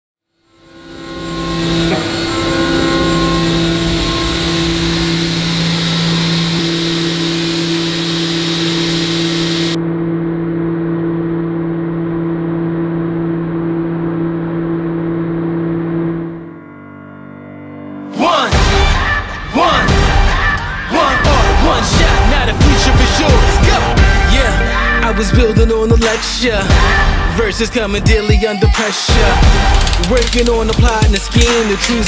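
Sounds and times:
mechanical drone with low hum: 0.4s - 16.6s.

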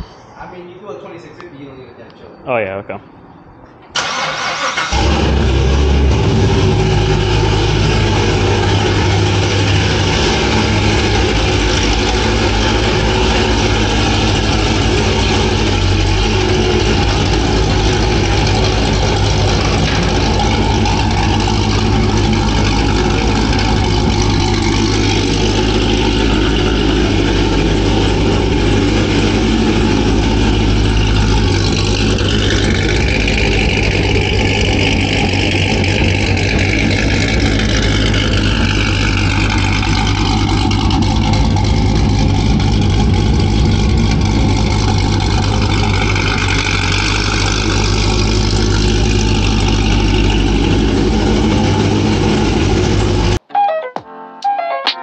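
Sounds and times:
car engine idling: 3.9s - 53.5s.

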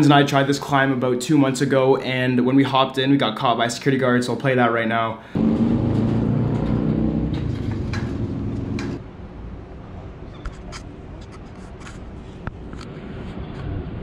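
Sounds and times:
steady low hum: 5.3s - 10.2s.

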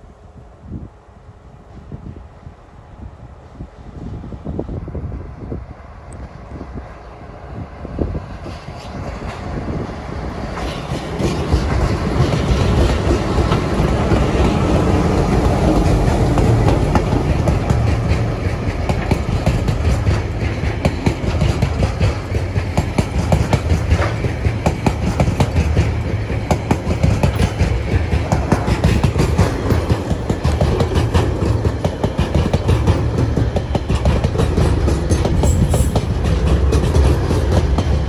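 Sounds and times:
diesel locomotives passing: 0.0s - 38.0s
freight wagons rumbling: 9.0s - 38.0s
wheel clicks over rail joints: 15.4s - 38.0s.

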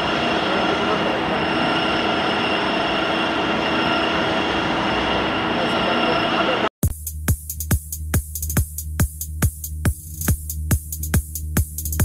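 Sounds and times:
high steady machine whine: 0.0s - 6.7s
lathe machining metal: 0.0s - 6.7s.

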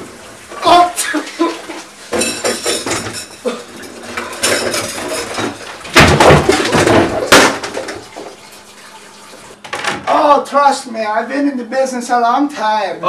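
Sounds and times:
dishes and pans clattering in sink: 1.3s - 8.7s.

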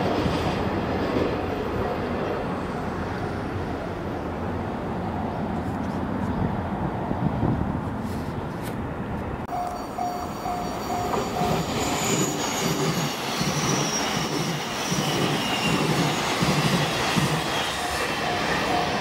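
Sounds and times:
electric train passing: 0.0s - 7.8s, 8.9s - 19.0s
pulsing warning tone beeps: 9.5s - 14.4s, 17.5s - 19.0s
high wheel squeal: 9.5s - 19.0s.

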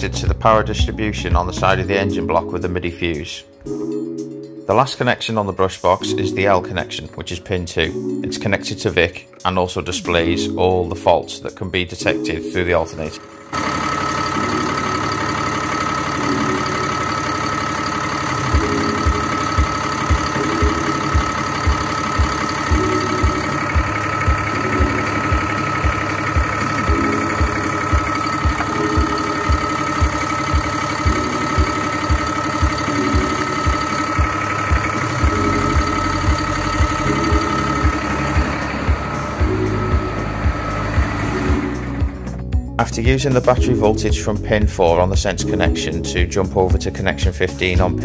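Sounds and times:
truck diesel engine idling: 13.0s - 42.8s
constant high whine: 13.2s - 42.6s.

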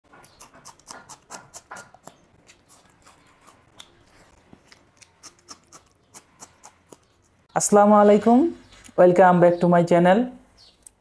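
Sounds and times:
biting into a chilli: 0.2s - 7.4s
chewing crunches: 0.2s - 7.4s
wet mouth clicks: 4.7s - 7.4s.

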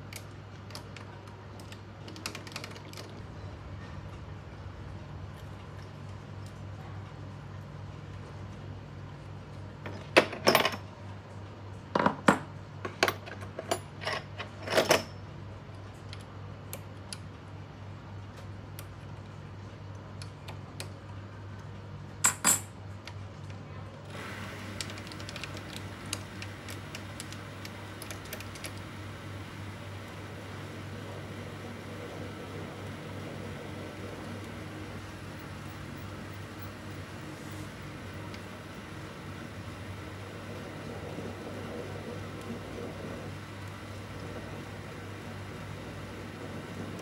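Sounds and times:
lathe spindle whirring: 24.1s - 47.0s.

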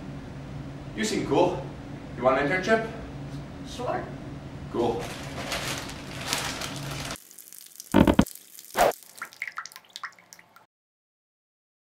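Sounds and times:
quick small drips: 7.3s - 10.7s
loud wet splats: 7.4s - 10.1s.

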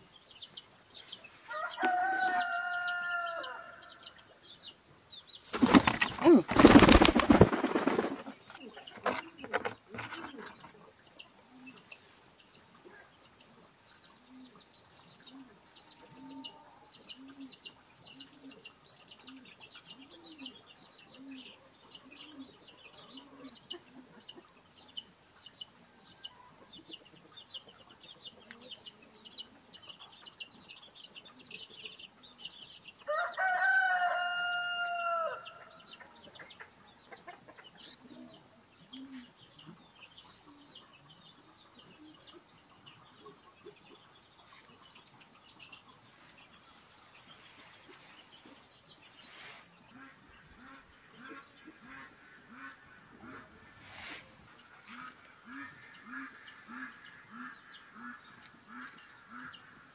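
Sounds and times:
rooster crowing: 1.5s - 3.9s, 33.1s - 35.5s.

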